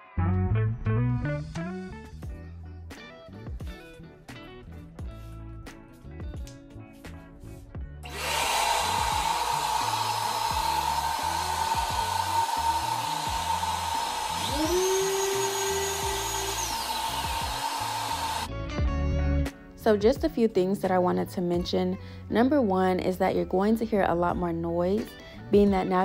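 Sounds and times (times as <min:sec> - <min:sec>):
orbital sander whine: 0:08.0 - 0:18.5
rising whine: 0:08.0 - 0:18.5
shop vacuum running: 0:08.0 - 0:18.5.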